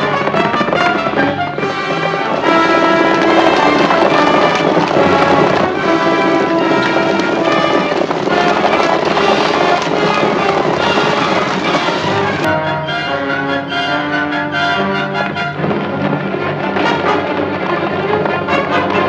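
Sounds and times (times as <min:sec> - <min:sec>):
horses galloping: 0:00.0 - 0:19.0
orchestral chase music with brass: 0:00.0 - 0:19.0.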